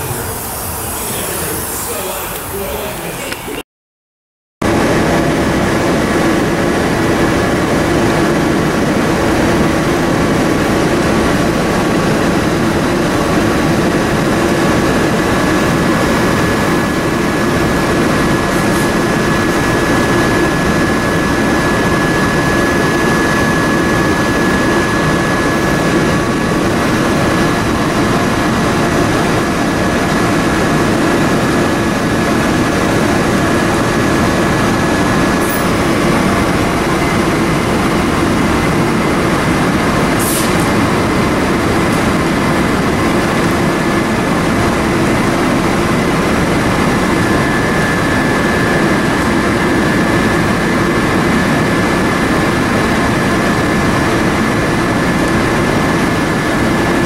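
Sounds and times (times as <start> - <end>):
paint spray gun air rushing: 0.0 - 3.6, 40.2 - 40.8
thin steady whine: 0.0 - 3.6, 4.6 - 57.0.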